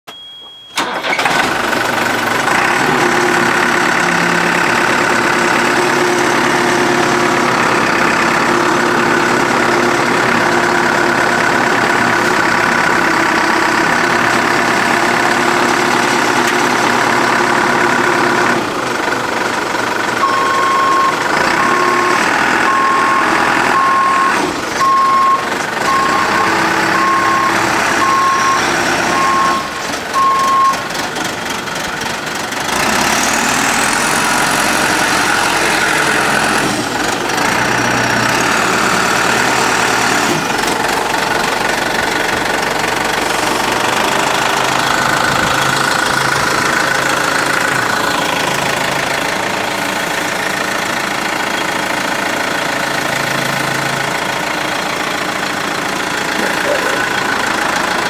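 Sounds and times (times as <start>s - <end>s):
backup alarm beeping: 0.1s - 1.1s, 20.2s - 22.0s, 22.7s - 30.8s
diesel engine running: 0.8s - 58.0s.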